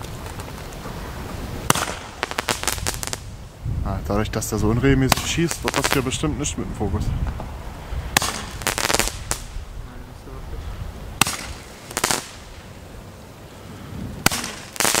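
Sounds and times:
firework pops: 0.0 - 1.0, 1.6 - 3.3, 5.1 - 6.2, 8.1 - 9.6, 11.2 - 12.6, 14.2 - 15.0
firework hissing burst: 1.4 - 3.6, 7.7 - 9.7, 11.2 - 12.8, 14.0 - 15.0.

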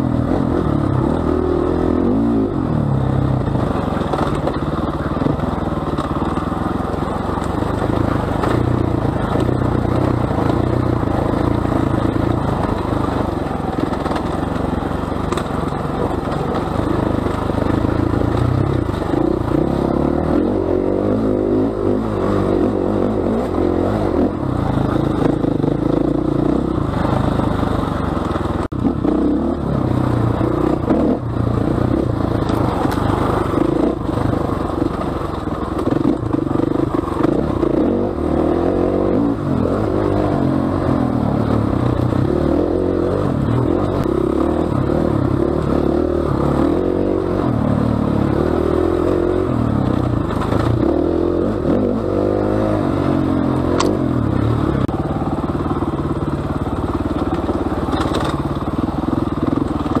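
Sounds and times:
dirt bike engine revving: 0.0 - 5.1, 16.6 - 27.6, 28.6 - 55.5
clatter and scraping over rough ground: 0.0 - 60.0.

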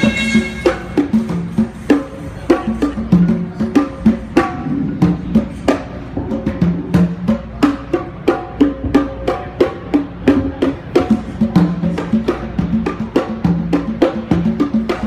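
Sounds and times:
congas and bongos playing: 0.0 - 15.0.

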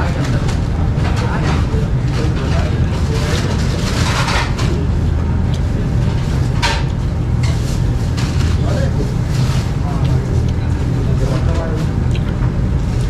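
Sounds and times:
background chatter: 0.0 - 13.0
eating sounds: 9.7 - 12.4.

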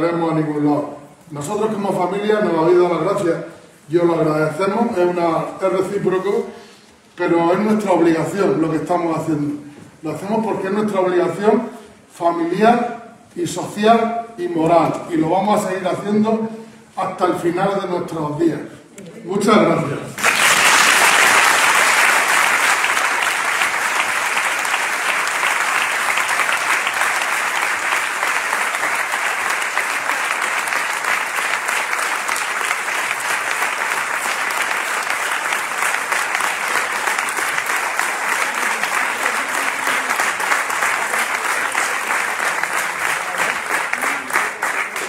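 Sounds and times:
audience applause: 20.2 - 45.0.

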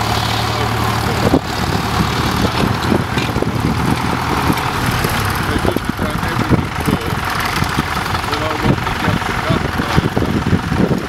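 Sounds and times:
tractor engine under load: 0.0 - 11.0.

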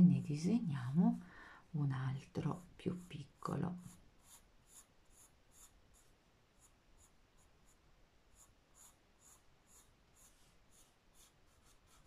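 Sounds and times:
pencil scratching on paper: 2.4 - 12.0.

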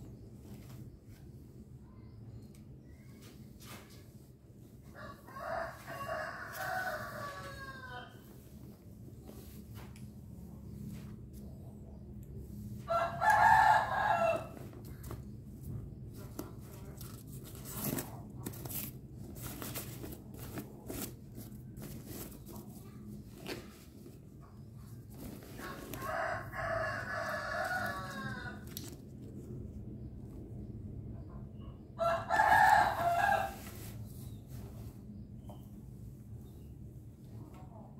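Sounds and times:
rooster crowing: 4.9 - 8.3, 12.9 - 14.6, 25.6 - 28.8, 32.0 - 33.8.

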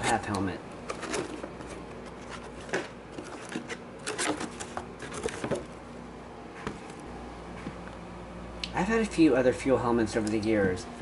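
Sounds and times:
cardboard rustling and scraping: 0.8 - 5.7.

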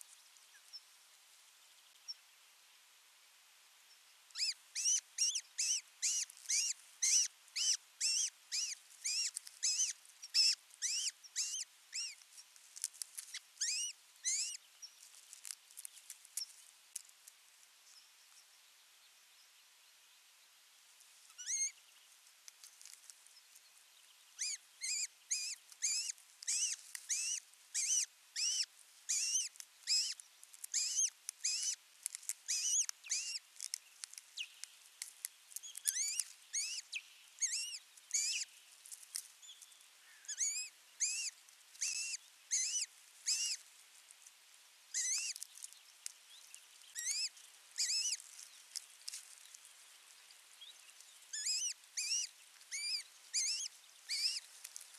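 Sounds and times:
osprey whistled chirps: 4.4 - 12.1, 13.6 - 14.6, 24.4 - 30.2, 37.4 - 38.4, 40.3 - 43.6, 46.9 - 48.2, 51.4 - 54.4.

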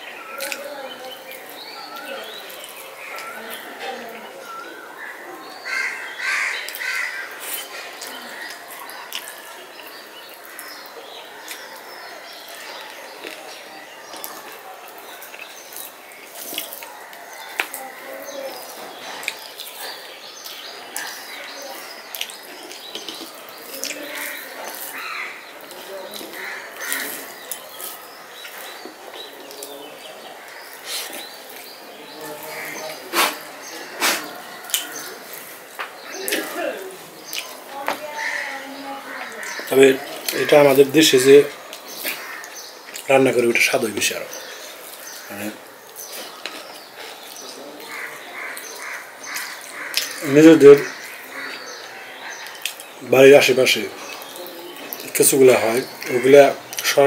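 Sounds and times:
faint birds chirping: 0.0 - 57.0
crow cawing: 5.0 - 7.4, 23.8 - 27.6, 38.0 - 40.8, 42.0 - 42.6, 47.8 - 52.6.

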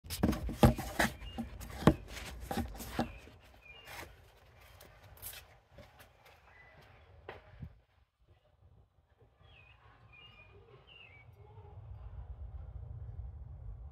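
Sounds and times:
phone handling knocks and rubbing: 0.1 - 3.4.

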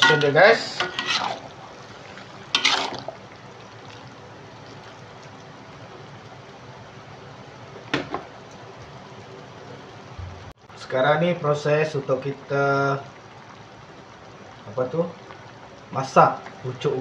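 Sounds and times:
soup sloshing while stirred: 0.0 - 5.4
steady hiss: 0.0 - 17.0.

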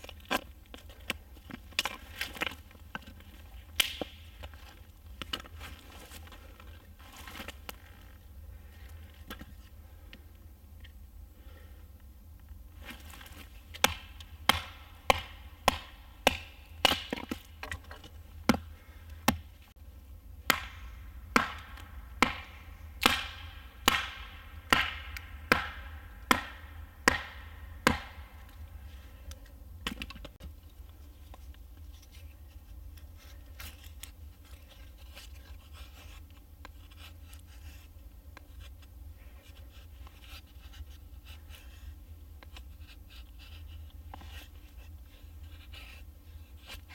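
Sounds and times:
hatchet chopping a stick: 3.8 - 4.2, 13.8 - 17.8, 20.4 - 28.5.

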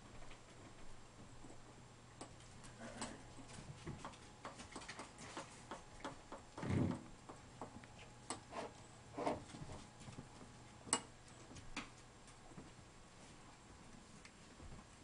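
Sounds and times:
claws clicking on hardwood floor: 3.4 - 6.7.

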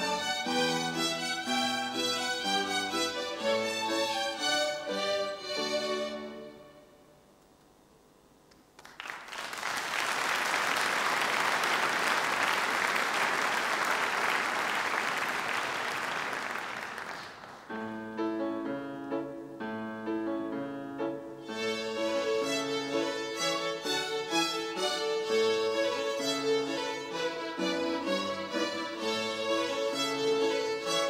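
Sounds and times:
audience applauding: 8.8 - 17.7
grand piano notes: 17.6 - 23.7.

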